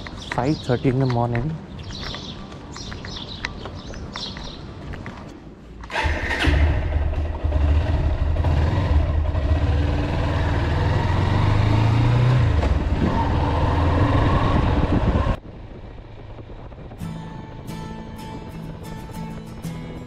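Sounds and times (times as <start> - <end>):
motorcycle engine running: 5.9 - 11.7.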